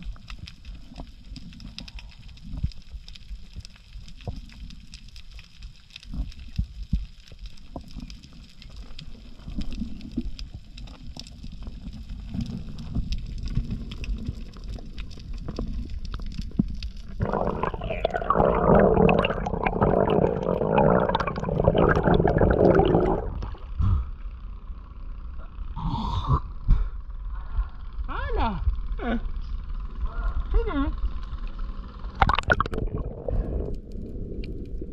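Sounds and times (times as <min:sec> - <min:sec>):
low underwater rumble: 0:00.0 - 0:25.6, 0:31.0 - 0:34.9
underwater clicks: 0:15.4 - 0:23.6, 0:32.2 - 0:33.8
water gurgling and bubbling: 0:17.0 - 0:23.7, 0:32.2 - 0:34.9.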